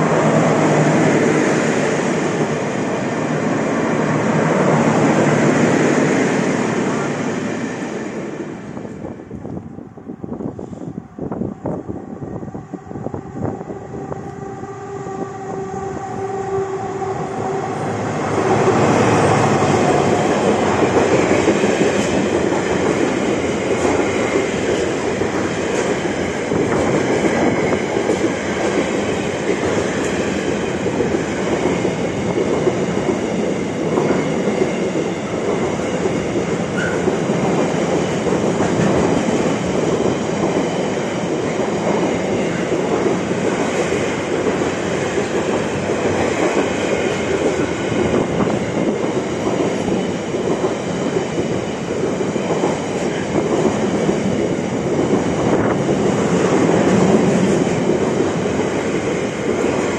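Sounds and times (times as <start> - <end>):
freight train wheels clattering: 18.3 - 59.9.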